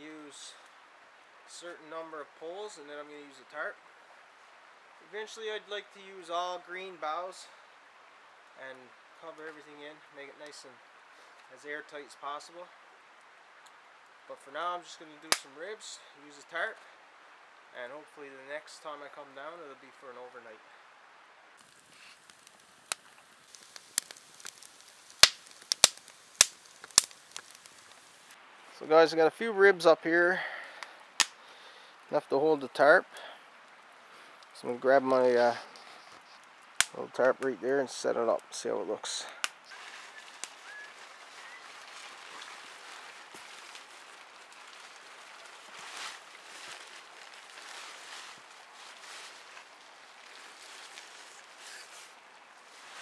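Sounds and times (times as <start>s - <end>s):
campfire crackling and popping: 7.2s - 18.8s, 21.5s - 53.0s
tarp rustling and crinkling: 21.6s - 29.9s, 34.5s - 53.0s.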